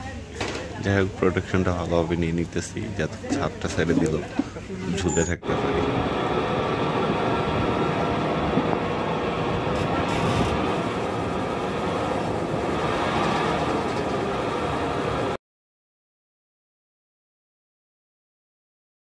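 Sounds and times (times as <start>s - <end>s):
zip-line trolley rolling on cable: 9.7s - 15.4s.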